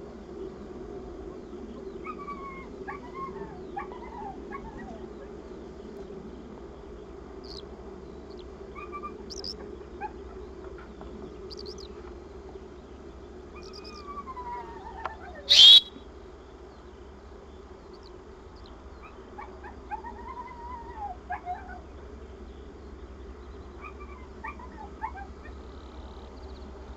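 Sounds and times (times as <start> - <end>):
steady low hum: 0.0 - 21.1
faint bird chirps: 7.4 - 7.6, 8.3 - 9.7, 11.4 - 12.0, 13.5 - 16.0
dog whining: 15.4 - 15.9.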